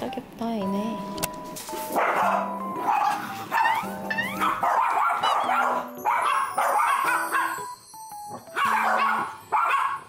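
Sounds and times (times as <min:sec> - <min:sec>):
dogs barking: 0:01.9 - 0:07.8, 0:08.4 - 0:10.0.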